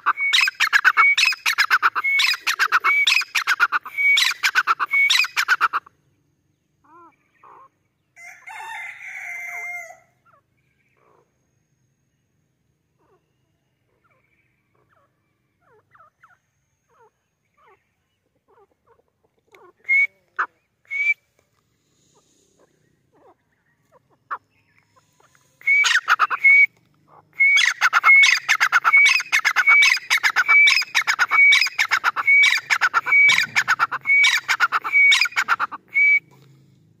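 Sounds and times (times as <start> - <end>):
bird whistled calls: 0.0 - 5.9, 19.7 - 21.3, 25.5 - 36.4.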